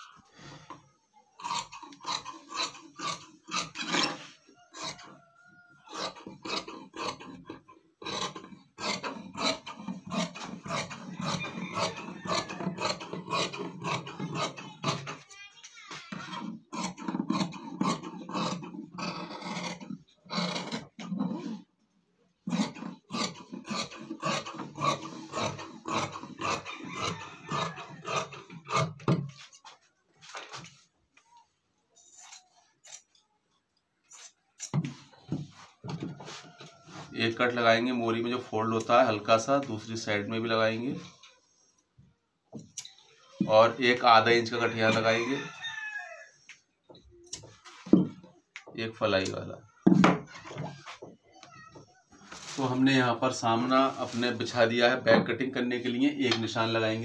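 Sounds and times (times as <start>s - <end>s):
shears cutting cloth: 5.9s - 21.6s, 22.5s - 30.8s.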